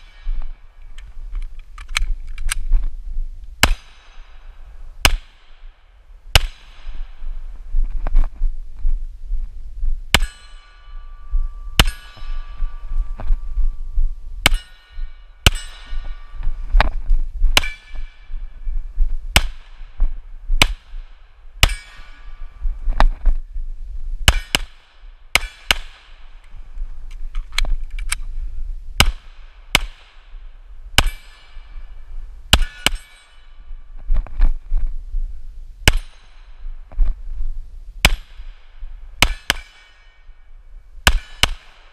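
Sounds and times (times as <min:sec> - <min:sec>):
low rumble: 0:00.0 - 0:24.3
steel target clanging: 0:10.2 - 0:13.4, 0:14.4 - 0:16.6, 0:17.6 - 0:18.4, 0:21.6 - 0:22.5, 0:31.0 - 0:31.9, 0:32.6 - 0:33.7.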